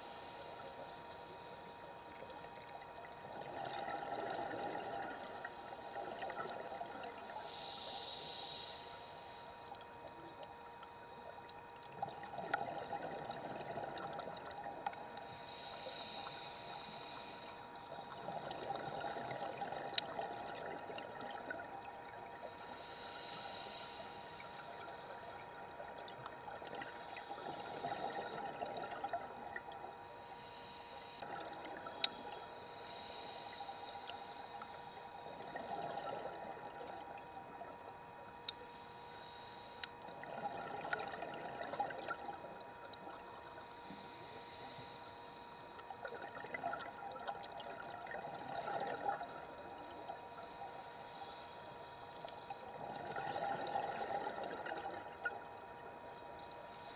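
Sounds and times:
regulator inhale hiss: 0.0s - 2.0s, 3.3s - 11.6s, 12.2s - 37.2s, 38.5s - 40.1s, 40.8s - 56.9s
faint hum: 0.0s - 56.9s
exhaled air bubbling: 1.7s - 7.9s, 11.3s - 16.8s, 17.7s - 22.7s, 24.4s - 30.0s, 31.2s - 32.4s, 35.2s - 38.2s, 39.9s - 43.5s, 45.8s - 50.2s, 52.1s - 56.1s.

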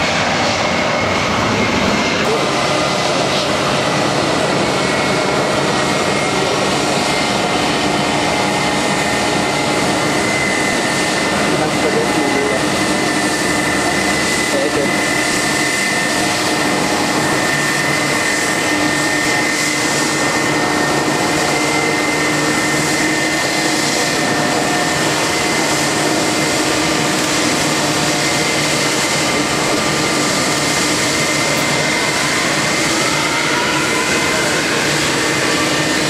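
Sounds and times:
jet engines whining: 0.0s - 36.0s.

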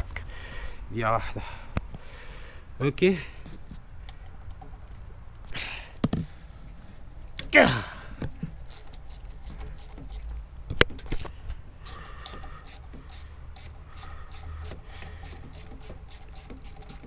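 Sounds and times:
ratchet wrench clicking: 8.5s - 10.4s, 11.0s - 17.0s.

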